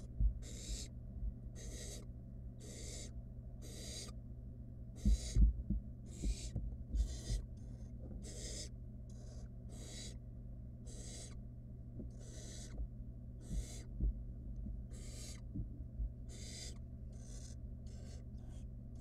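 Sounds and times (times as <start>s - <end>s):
owl nestlings hissing: 0.0s - 0.9s, 1.6s - 4.2s, 5.0s - 5.4s, 6.1s - 10.2s, 10.8s - 11.4s, 12.1s - 12.8s, 13.4s - 13.9s, 14.9s - 15.5s, 16.3s - 18.6s
steady low hum: 0.0s - 19.0s.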